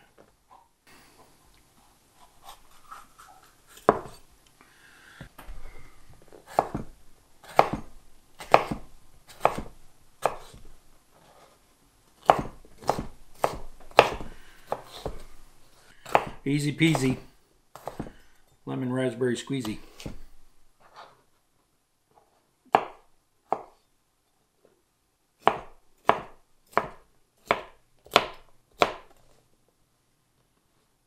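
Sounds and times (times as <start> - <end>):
knife chopping on cutting board: 3.8 - 4.2, 6.4 - 10.6, 12.2 - 15.3, 16.0 - 18.2, 19.6 - 20.4, 22.7 - 23.7, 25.4 - 29.2.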